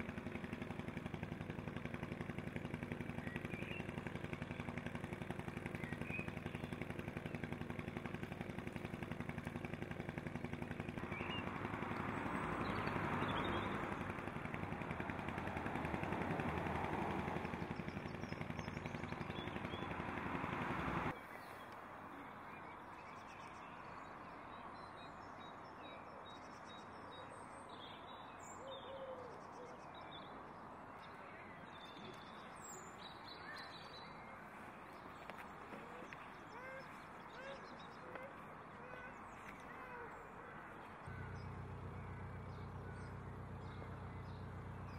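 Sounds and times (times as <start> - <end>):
engine idling: 0.0 - 21.2, 31.2 - 44.9
birds chirping: 0.0 - 44.9.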